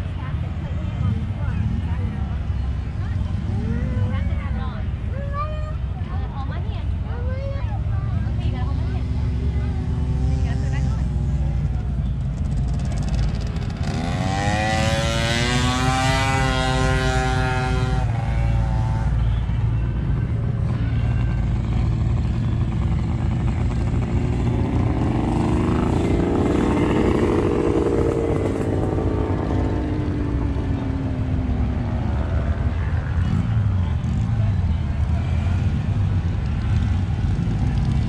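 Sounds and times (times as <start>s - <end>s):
motorcycle engines running: 0.0s - 38.0s
motorcycle passing by: 0.0s - 38.0s.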